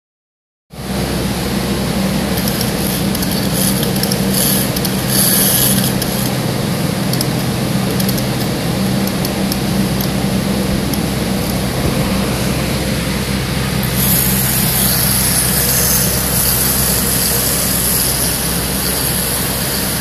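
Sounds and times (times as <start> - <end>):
machine-room hum and whir: 0.7 - 20.0
clockwork winding clicks: 2.4 - 6.4, 7.1 - 10.2.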